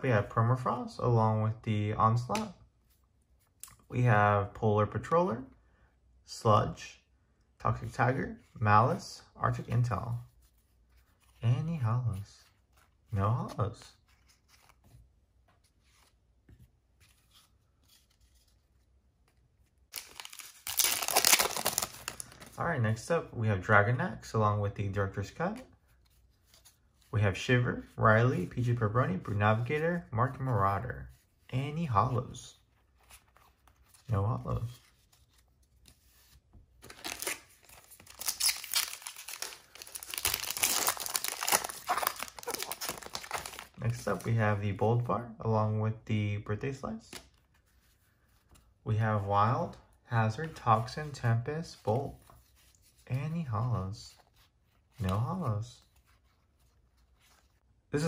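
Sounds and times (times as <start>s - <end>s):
card pack wrapper tearing: 19.9s - 22.5s, 36.8s - 44.3s.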